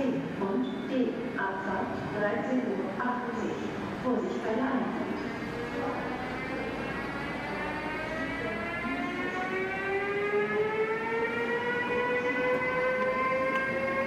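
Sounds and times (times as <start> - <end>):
electric locomotive drive whine: 2.8 - 14.0.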